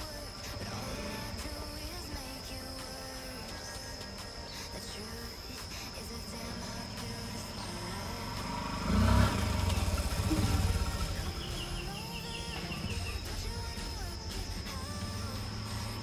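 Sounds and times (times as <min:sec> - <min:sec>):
motorcycle riding past: 0:06.5 - 0:13.5.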